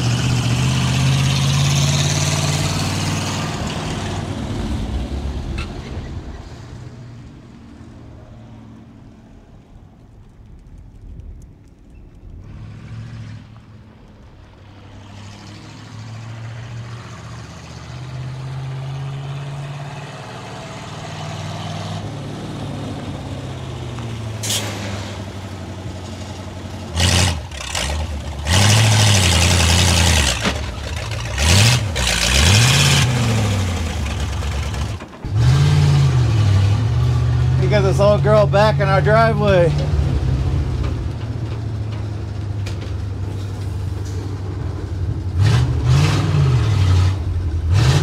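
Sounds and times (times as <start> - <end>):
truck engine running: 13.5 - 48.0.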